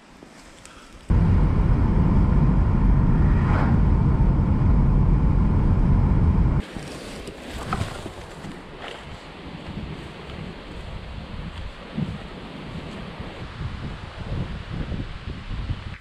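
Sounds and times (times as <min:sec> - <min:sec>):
road and engine rumble in car: 0:01.1 - 0:06.6.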